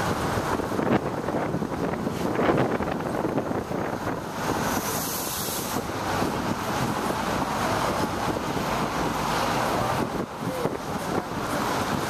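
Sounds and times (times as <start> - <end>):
passing cars and buses: 0.0 - 12.0
wind on the microphone: 0.0 - 12.0
hiss: 4.7 - 5.9.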